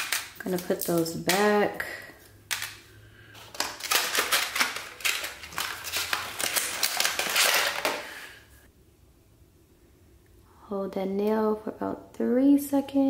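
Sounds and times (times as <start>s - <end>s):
plastic clicking and crinkling: 0.0s - 1.6s, 2.5s - 2.8s, 3.4s - 8.1s.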